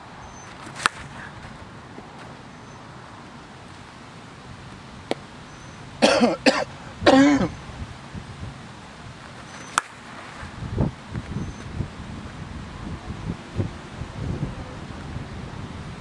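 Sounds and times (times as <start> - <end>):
sharp short cracks: 0.6 - 1.2
person coughing: 6.0 - 7.5.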